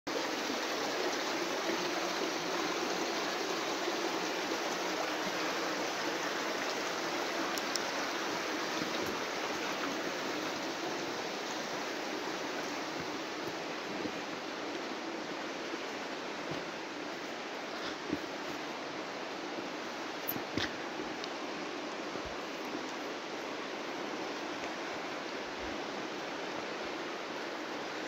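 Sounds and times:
running water rushing: 0.1s - 28.0s.

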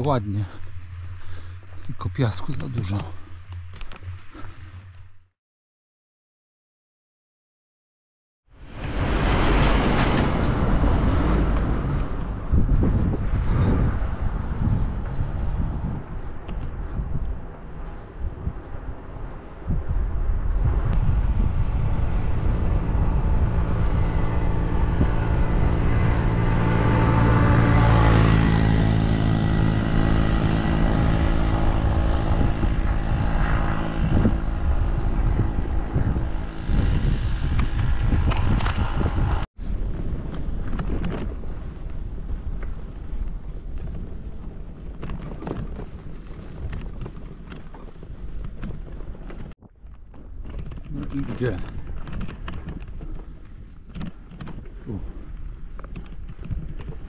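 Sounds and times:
road and wind noise: 0.0s - 5.3s, 8.5s - 57.0s
vehicle engine humming: 0.0s - 5.3s, 8.6s - 39.5s.

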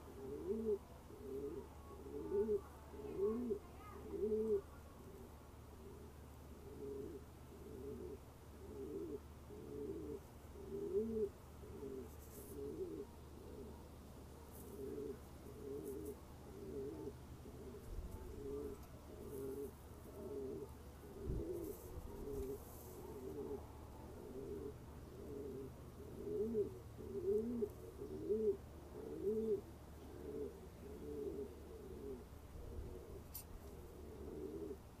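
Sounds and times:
pigeons cooing: 0.0s - 35.0s.

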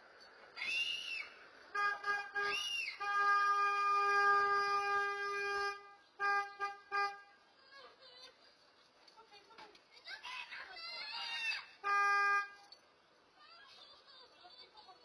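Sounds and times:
rising and falling chirps: 0.6s - 1.4s, 2.5s - 3.0s
car horn honking: 1.7s - 7.4s, 11.8s - 12.8s.

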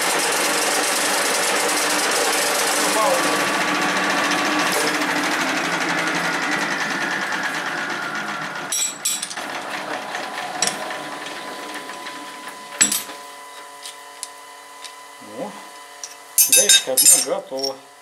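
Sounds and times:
lathe running down: 0.0s - 13.2s.

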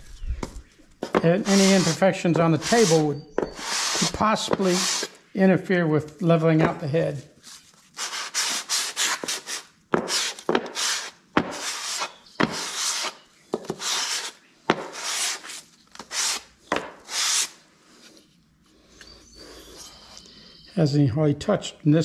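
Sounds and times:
metal rasping on sandpaper: 1.3s - 5.2s, 8.0s - 16.4s.

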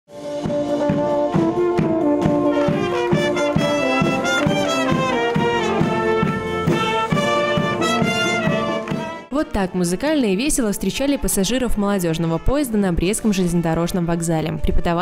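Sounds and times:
brass band playing march: 0.1s - 9.4s
bass drum beating: 0.3s - 9.3s.

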